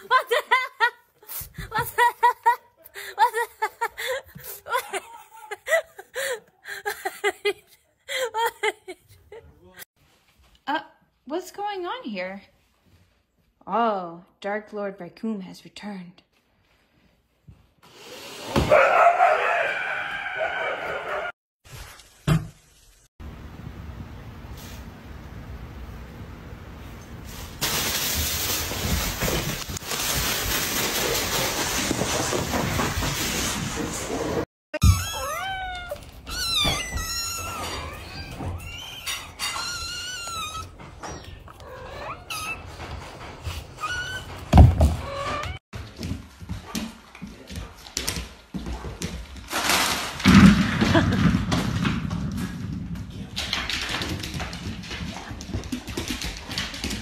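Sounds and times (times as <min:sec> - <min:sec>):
plastic bag crinkling and rustling: 0:27.3 - 0:33.5
dog paws thudding on wooden floor: 0:51.6 - 0:57.0.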